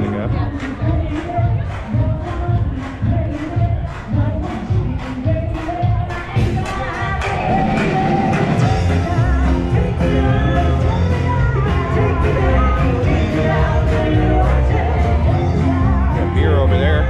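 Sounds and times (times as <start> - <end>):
drumbeat: 0.0 - 17.0
heavy bass: 0.0 - 17.0
wavering singing voice: 0.0 - 17.0.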